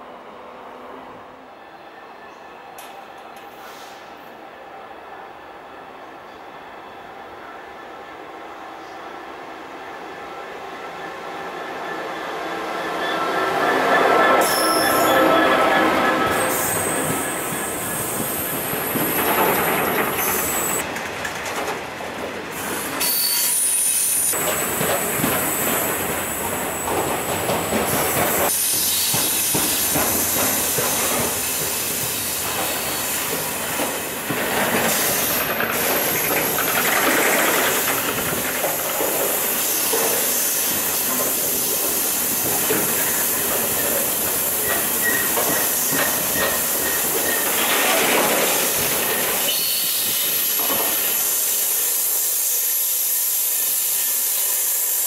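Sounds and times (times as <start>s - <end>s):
steel wheels rumbling on rail: 11.3s - 55.0s
high wheel squeal: 11.9s - 20.8s, 23.0s - 24.8s, 42.9s - 47.9s, 48.6s - 50.5s.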